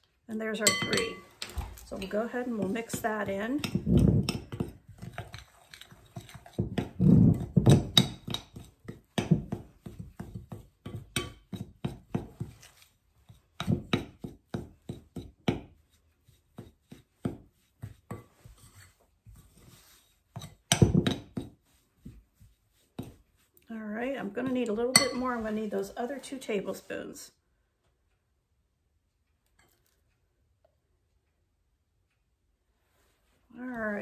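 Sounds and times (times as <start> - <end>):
fork scraping a glass bowl: 3.6 - 8.7.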